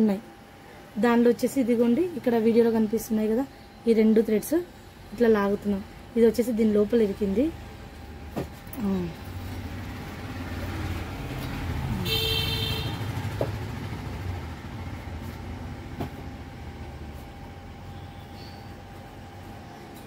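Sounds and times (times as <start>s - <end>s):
low motor rumble: 5.0s - 19.8s.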